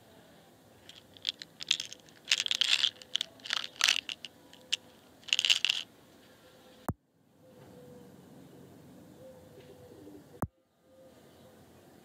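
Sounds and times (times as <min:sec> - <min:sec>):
pellets rattling in plastic box: 0:00.8 - 0:05.8.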